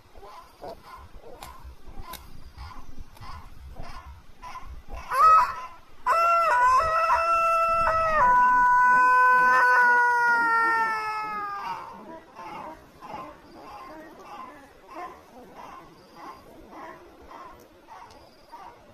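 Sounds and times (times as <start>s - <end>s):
rooster crowing: 5.1s - 11.9s.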